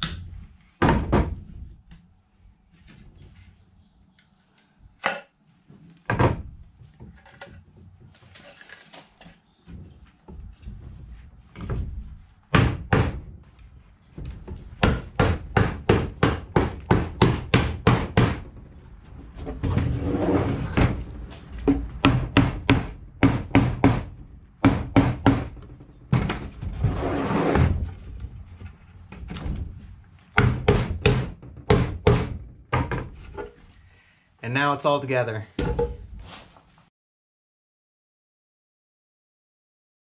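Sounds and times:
hammer knocking on wood: 12.5 - 13.3, 14.8 - 18.5, 21.6 - 26.4, 30.4 - 33.1.

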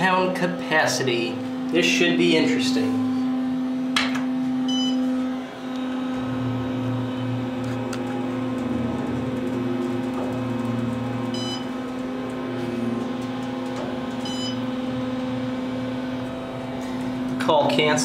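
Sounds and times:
elevator hum: 0.0 - 18.0
low rumble of elevator car: 6.1 - 17.4.

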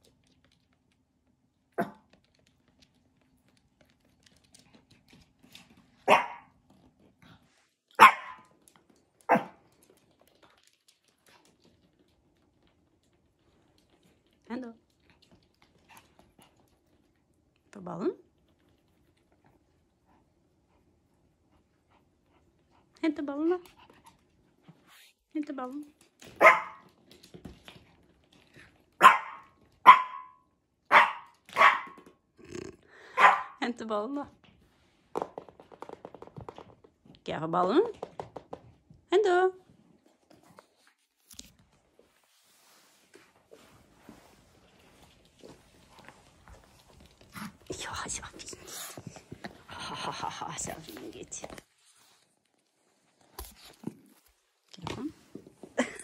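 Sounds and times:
small dog barking: 1.8 - 2.0, 6.0 - 6.5, 8.0 - 8.5, 9.3 - 9.6, 26.4 - 26.8, 29.0 - 32.0, 33.1 - 33.6.

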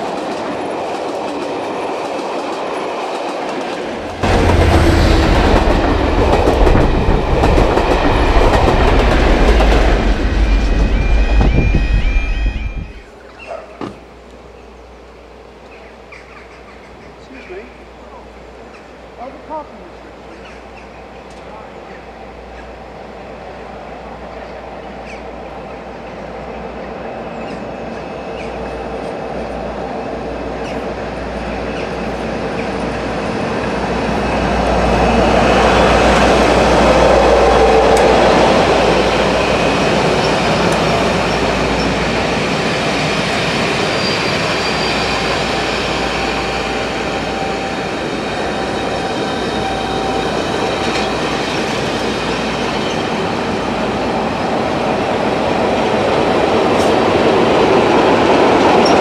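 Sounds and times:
train engine and wheels on rails: 0.0 - 59.0.

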